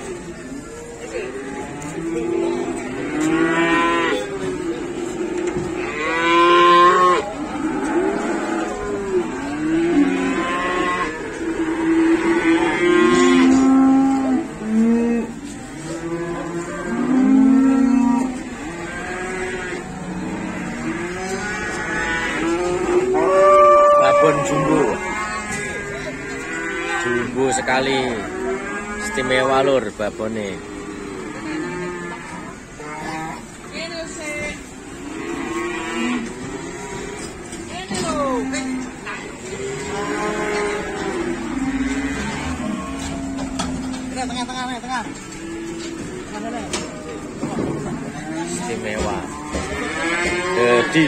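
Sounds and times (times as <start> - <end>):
cows mooing: 0.0 - 51.0.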